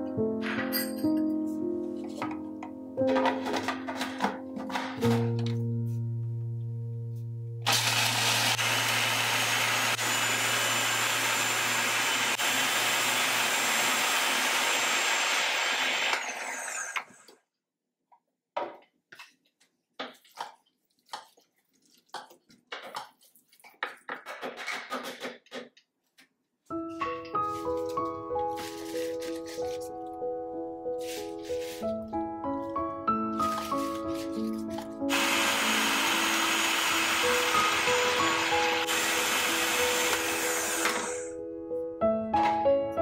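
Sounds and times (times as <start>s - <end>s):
food processor grinding nuts: 7.7s - 17.3s, 35.1s - 41.3s.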